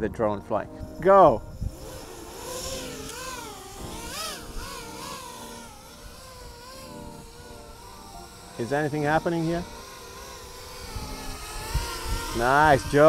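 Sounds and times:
drone motors whining: 0:00.7 - 0:13.0.

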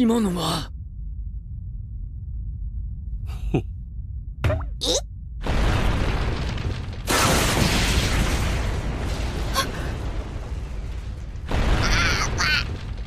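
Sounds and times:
booming blast rumbling: 0:05.4 - 0:13.0.

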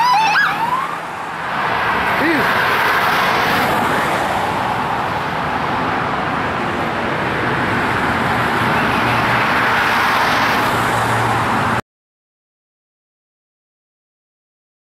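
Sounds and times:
car engine hum passing: 0:00.0 - 0:11.8
highway traffic noise: 0:00.0 - 0:11.8.

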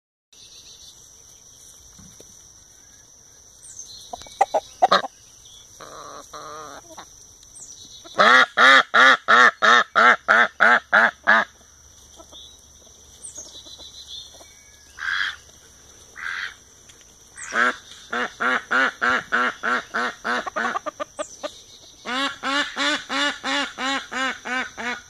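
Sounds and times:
ducks and chickens calling: 0:04.0 - 0:07.2, 0:08.0 - 0:16.7, 0:17.4 - 0:25.0.

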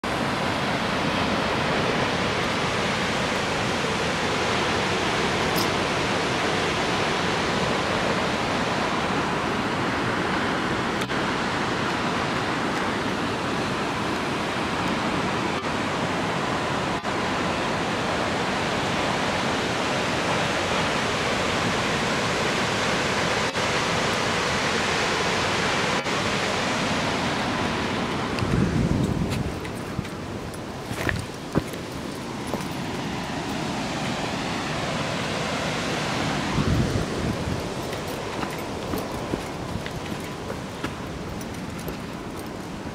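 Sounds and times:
waterfall roaring: 0:00.0 - 0:42.9.

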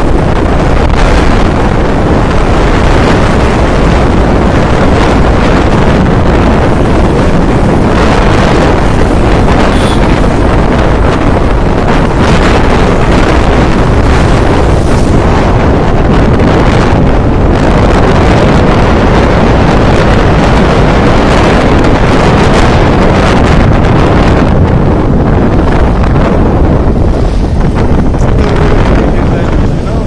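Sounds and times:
motorcycle engine and road noise: 0:00.0 - 0:30.0
wind rushing on microphone: 0:00.0 - 0:30.0.

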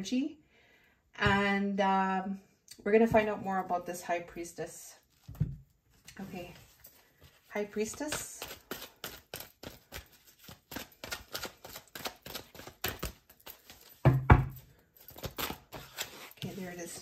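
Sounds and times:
cards being shuffled: 0:07.4 - 0:14.0, 0:15.2 - 0:17.0.

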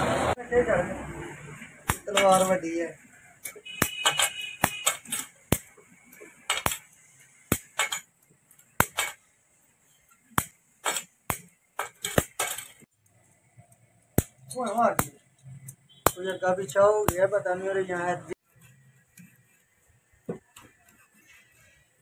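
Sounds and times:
metal snips clipping metal: 0:01.9 - 0:02.6, 0:03.4 - 0:09.3, 0:10.3 - 0:12.8.

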